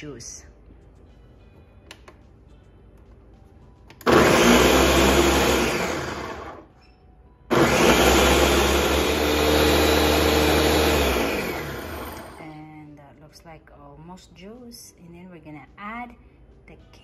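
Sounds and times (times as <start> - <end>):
electric blender motor: 4.0 - 6.7, 7.5 - 12.4.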